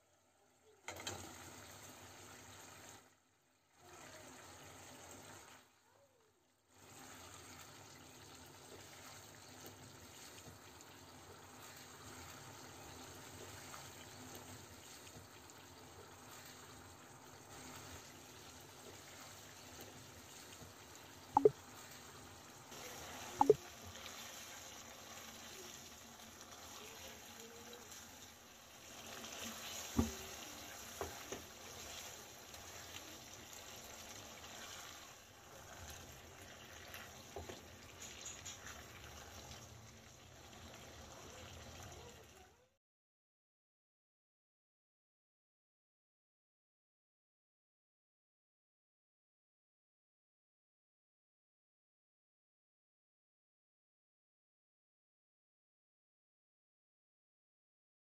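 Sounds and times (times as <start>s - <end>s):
sauce bubbling and sizzling: 0.0s - 42.7s.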